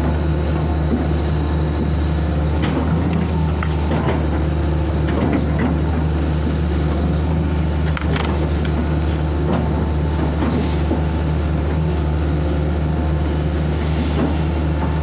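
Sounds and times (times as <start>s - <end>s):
excavator diesel engine running: 0.0s - 15.0s.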